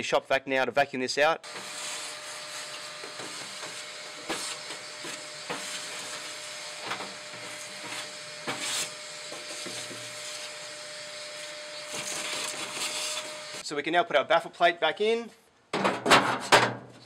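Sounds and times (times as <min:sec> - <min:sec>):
shop vac running: 0:01.4 - 0:13.6
nozzle knocking and scraping metal: 0:02.5 - 0:10.5, 0:15.7 - 0:16.9.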